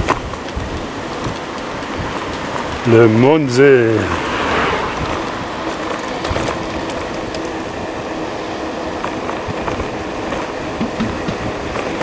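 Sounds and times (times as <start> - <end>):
road and wind noise: 0.0 - 12.0.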